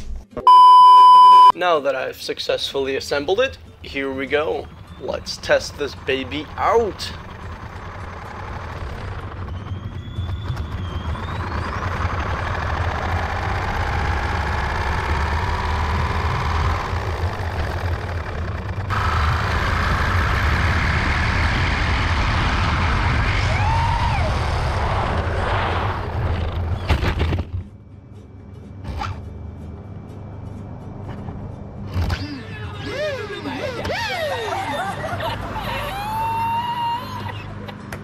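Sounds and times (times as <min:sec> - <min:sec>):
rumble of tyres and wind: 0:03.3 - 0:36.4
electric motor whining: 0:05.4 - 0:23.8, 0:31.9 - 0:34.8.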